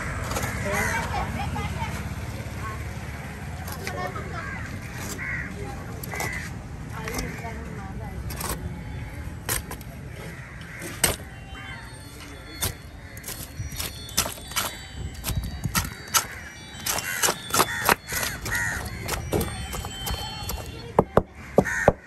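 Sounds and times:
background din: 9.2s - 22.0s.

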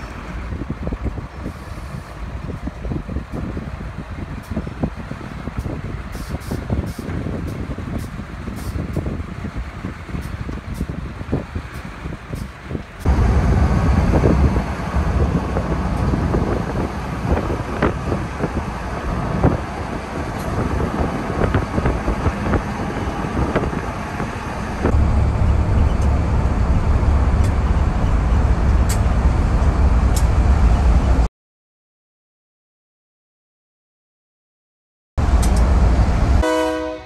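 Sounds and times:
diesel locomotive engine rumble: 0.0s - 31.3s, 35.2s - 37.0s
wind buffeting microphone: 0.1s - 31.3s.

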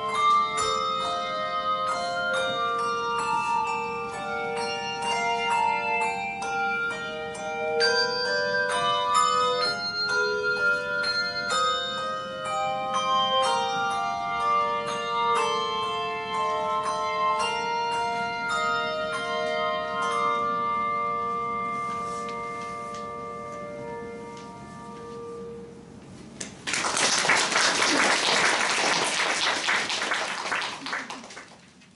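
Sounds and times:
handbell ensemble chords: 0.0s - 26.1s
audience applause: 26.6s - 31.7s.

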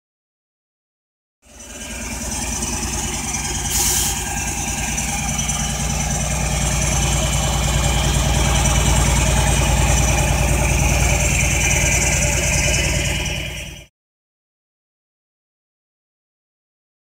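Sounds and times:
diesel engine idling: 1.4s - 13.9s
brief hiss: 3.7s - 4.3s.

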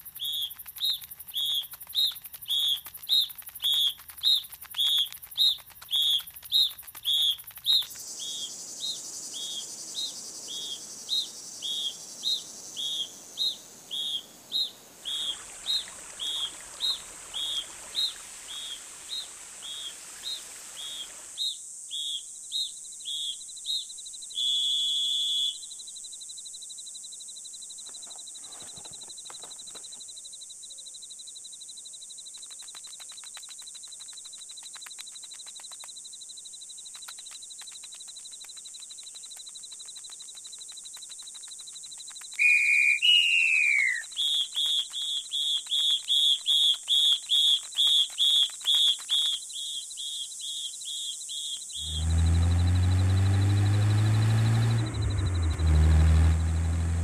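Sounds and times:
high whistle-like chirps: 0.0s - 26.0s, 41.7s - 56.8s
steady high insect drone: 0.0s - 47.4s, 49.4s - 57.0s
falling whistle: 24.4s - 25.7s, 42.4s - 50.8s, 51.7s - 56.6s.

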